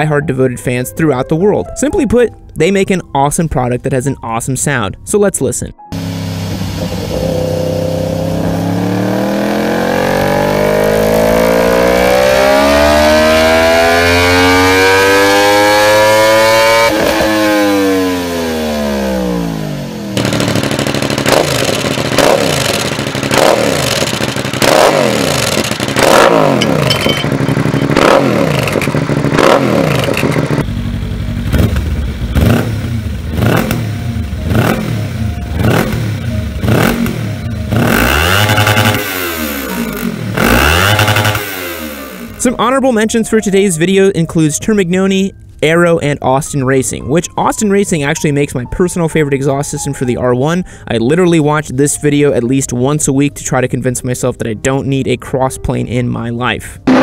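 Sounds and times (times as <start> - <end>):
motorcycle engine blipped: 5.7 - 50.4
motorcycle engine revving on dyno: 5.9 - 42.4
motorcycle revved in quick blips: 6.0 - 42.4.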